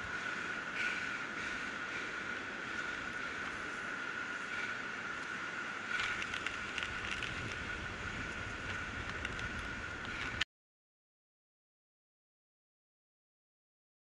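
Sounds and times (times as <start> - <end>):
high-pitched whine: 0.0 - 10.4
outdoor background hiss: 0.0 - 10.4
small clicks and rustles: 4.6 - 10.5.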